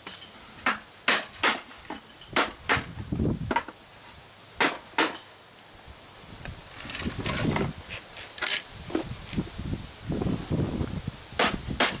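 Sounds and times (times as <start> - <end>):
hammer driving nails into wood: 4.6 - 5.2
wooden box scraping: 6.7 - 9.4.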